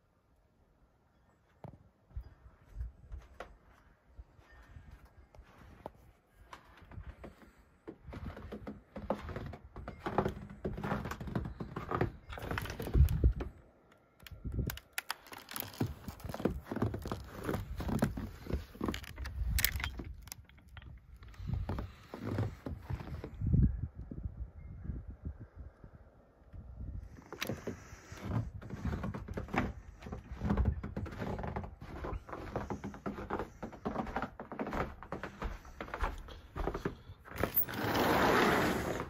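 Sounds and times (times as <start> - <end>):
footsteps: 2.2 - 13.5, 27.3 - 39.0.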